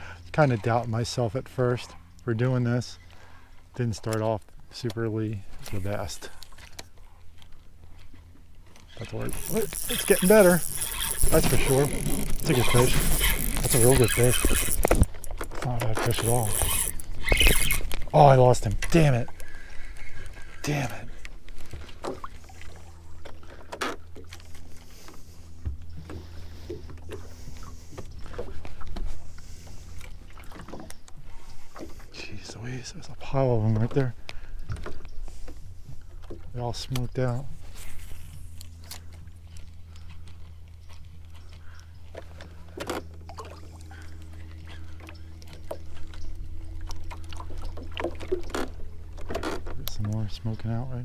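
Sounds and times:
steady low hum: 0.0s - 51.0s
gear knocking in a boat: 8.6s - 19.5s, 38.8s - 50.6s
fishing reel cranking: 9.0s - 18.1s.

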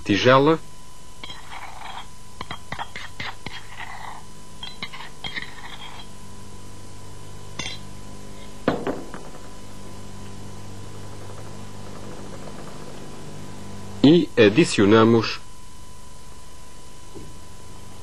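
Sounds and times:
utensil clinking against bowl: 1.2s - 3.7s, 4.6s - 6.1s, 7.6s - 7.9s.

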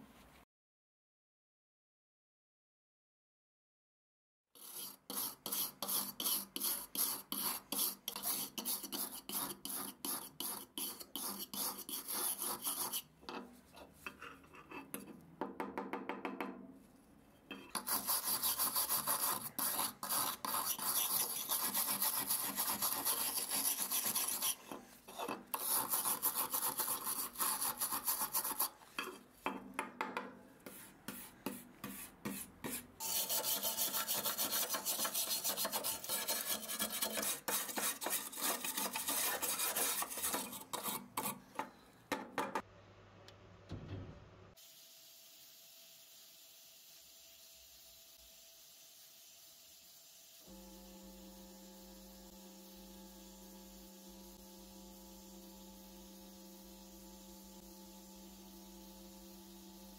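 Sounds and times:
brush scrubbing rusty metal: 4.6s - 13.1s, 17.7s - 29.6s, 30.6s - 41.7s.

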